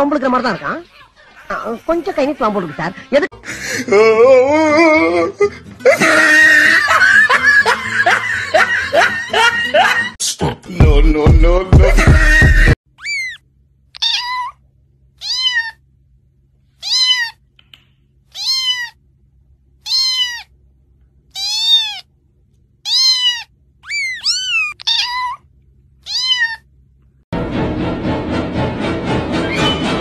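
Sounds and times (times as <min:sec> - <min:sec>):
music: 0:04.5 - 0:12.8, 0:27.4 - 0:30.0
kitten meowing: 0:13.0 - 0:13.4, 0:14.0 - 0:14.6, 0:15.2 - 0:15.8, 0:16.8 - 0:17.4, 0:18.3 - 0:19.0, 0:19.8 - 0:20.5, 0:21.3 - 0:22.1, 0:22.8 - 0:25.4, 0:26.0 - 0:26.7.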